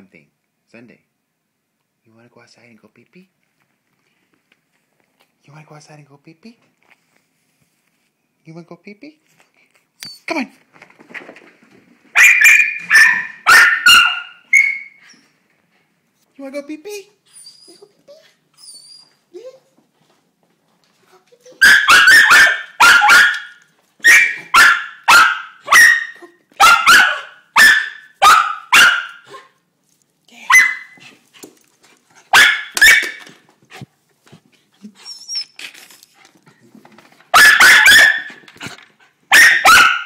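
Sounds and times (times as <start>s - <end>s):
dog barking sharply: 12.2s - 15.0s, 21.6s - 29.5s, 30.5s - 31.0s, 32.3s - 33.3s, 37.3s - 38.4s, 39.3s - 40.0s.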